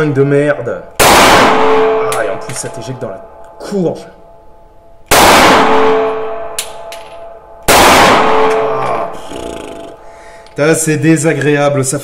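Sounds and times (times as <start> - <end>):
pistol shots with ringing decay: 1.0 - 2.4, 5.1 - 8.9.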